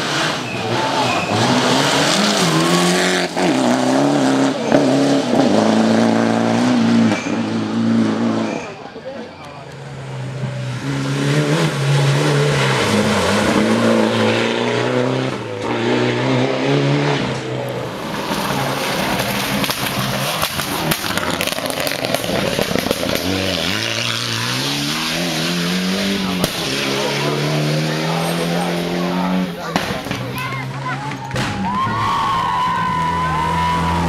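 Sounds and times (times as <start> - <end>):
rally car engine revving: 0.0 - 34.0
gravel noise: 17.4 - 28.8.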